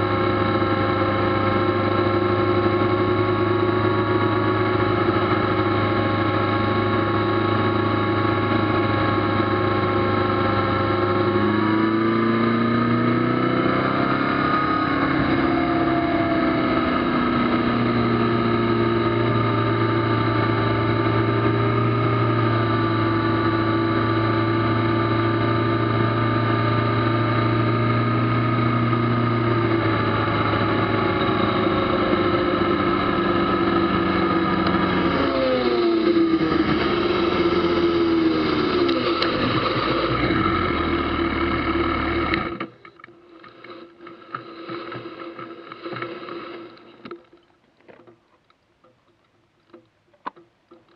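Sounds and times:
motorcycle engine running: 0.0s - 47.1s.

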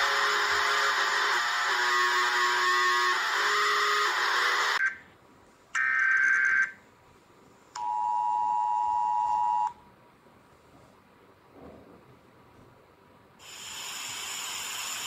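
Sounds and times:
harsh buzzing alarm tone: 0.0s - 5.0s, 5.8s - 6.8s.

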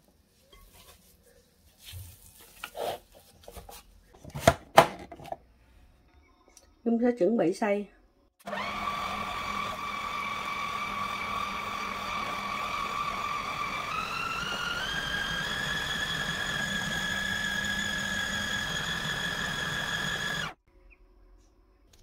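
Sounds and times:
food processor motor whine: 8.4s - 20.6s.

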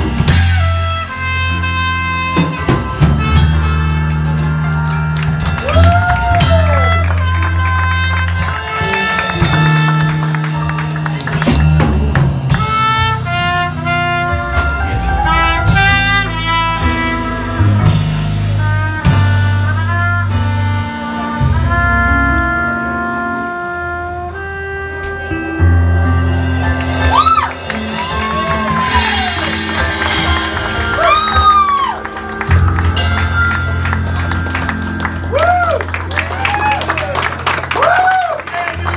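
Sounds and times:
trumpet playing melody: 0.0s - 11.8s, 12.4s - 37.9s
drum kit with cymbal crashes: 0.0s - 21.8s, 25.1s - 34.1s
electric bass: 0.0s - 38.9s.

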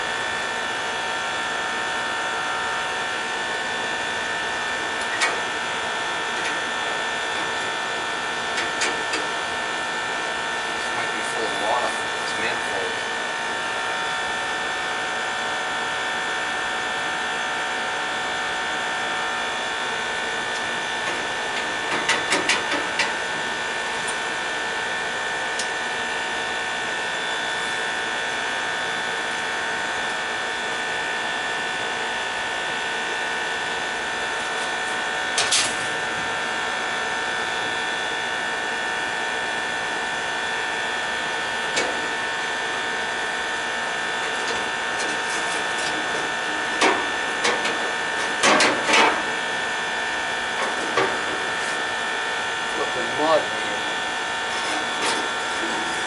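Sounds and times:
machine hum with high whine: 0.0s - 56.0s
clicks and knocks on sheet metal: 44.4s - 49.2s.

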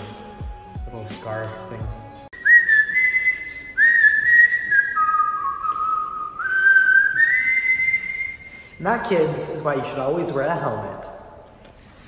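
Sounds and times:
person whistling a slow tune: 2.2s - 8.8s.

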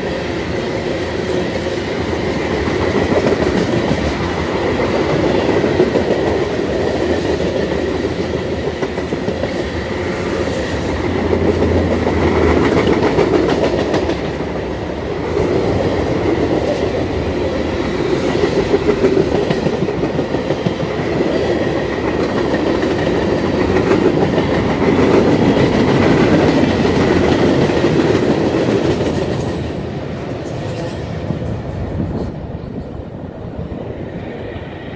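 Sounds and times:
train wheels rumbling on rails: 0.0s - 34.9s
rhythmic clickety-clack: 2.3s - 9.7s, 11.1s - 14.5s, 18.3s - 29.7s.

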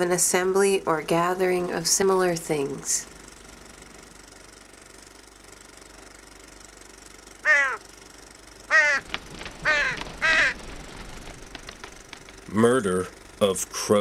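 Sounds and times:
crows cawing: 7.4s - 7.9s, 8.7s - 10.8s
faint steady hiss: 9.0s - 14.0s.

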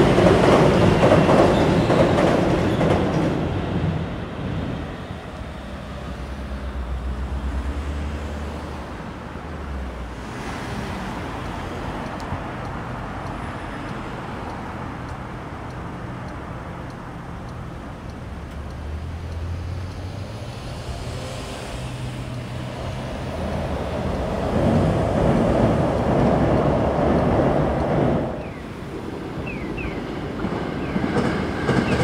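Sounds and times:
road traffic rumbling: 0.0s - 32.0s
vehicle passing close: 18.8s - 29.4s.

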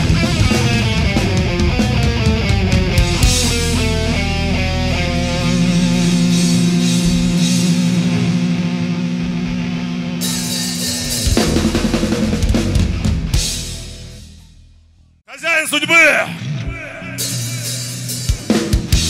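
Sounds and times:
heavy metal band music: 0.0s - 14.3s, 15.3s - 19.0s
rapid drum hits with cymbals: 10.2s - 14.2s, 17.2s - 19.0s.

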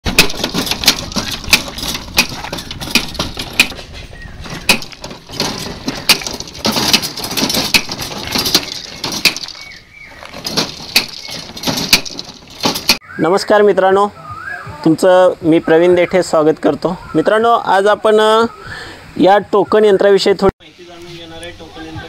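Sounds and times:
planter spikes crunching into gravel: 0.0s - 13.0s
seed drum clicking: 0.0s - 13.0s.

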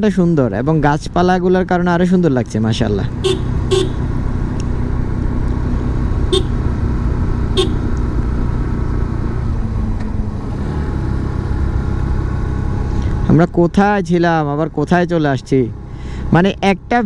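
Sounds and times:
motorcycle engine running: 2.7s - 13.1s.

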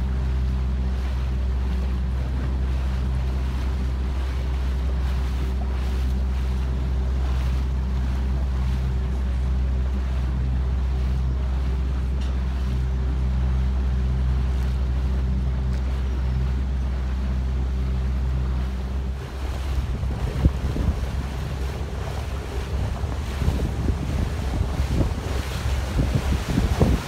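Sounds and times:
boat engine humming: 0.0s - 27.0s
water washing along hull: 0.0s - 27.0s
wind on microphone: 14.3s - 27.0s.

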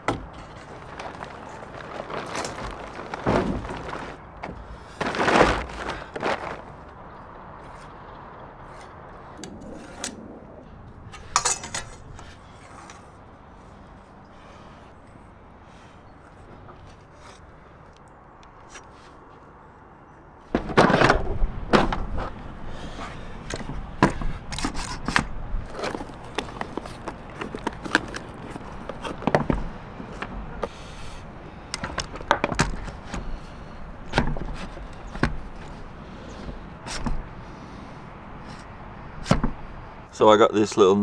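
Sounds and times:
tools and timber knocking and scraping: 0.0s - 7.0s, 11.0s - 13.2s, 23.0s - 30.8s, 31.7s - 37.3s.

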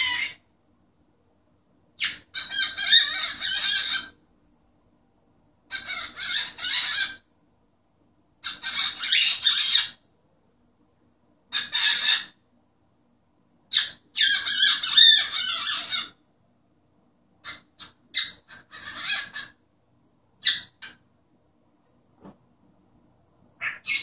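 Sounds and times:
cockatiel chattering and warbling: 0.0s - 0.4s, 2.0s - 4.2s, 5.7s - 7.2s, 8.4s - 10.0s, 11.5s - 12.4s, 13.7s - 16.2s, 17.4s - 19.6s, 20.4s - 21.0s, 23.6s - 24.0s.

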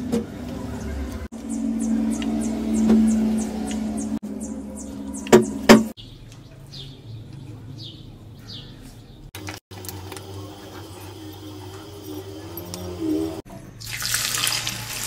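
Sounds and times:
small bird chirping: 1.4s - 9.3s
sharp knocks: 5.3s - 6.0s.

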